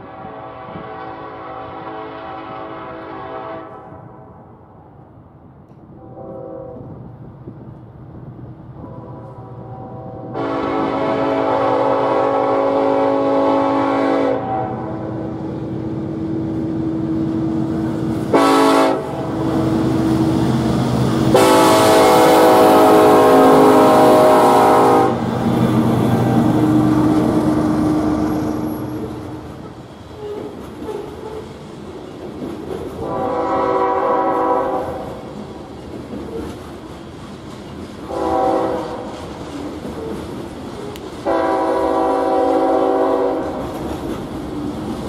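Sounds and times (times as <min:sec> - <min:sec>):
locomotive horn blasts: 0:00.0 - 0:04.4, 0:06.0 - 0:07.0, 0:08.8 - 0:15.4, 0:18.3 - 0:19.8, 0:21.3 - 0:29.6, 0:33.0 - 0:35.2, 0:38.1 - 0:39.1, 0:41.2 - 0:43.6
locomotive engines rumbling: 0:05.8 - 0:45.0.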